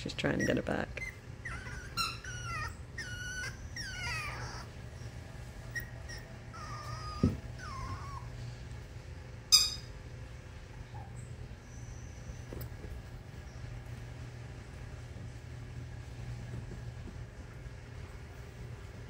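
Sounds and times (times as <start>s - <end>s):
puppy whining: 0.2s - 8.5s, 10.7s - 13.7s.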